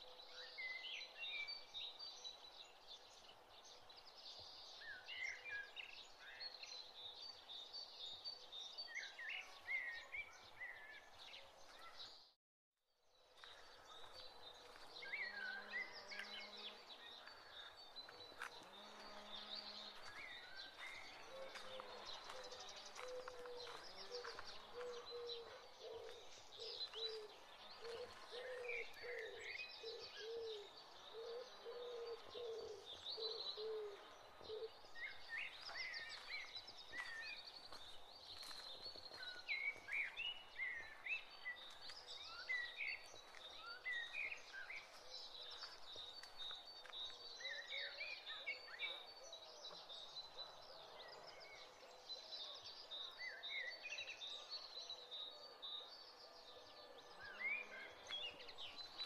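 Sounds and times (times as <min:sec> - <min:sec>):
birds chirping: 0:13.2 - 0:59.0
low repeated bird calls: 0:13.5 - 0:59.0.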